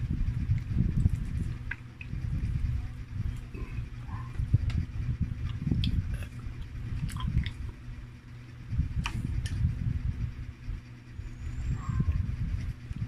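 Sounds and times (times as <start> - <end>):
steady low rumble: 0.0 - 13.0
chewing and biting food: 3.2 - 7.9.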